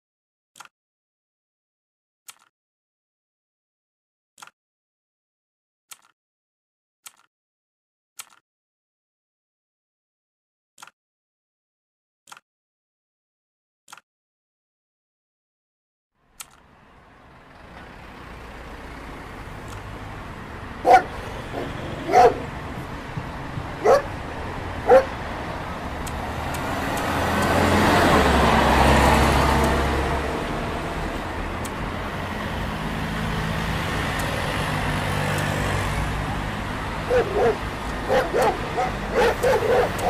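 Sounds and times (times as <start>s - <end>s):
street traffic: 16.2s - 40.0s
vehicle passing: 16.6s - 40.0s
dog barking: 20.8s - 22.6s, 23.8s - 24.2s, 24.8s - 25.2s, 37.0s - 40.0s.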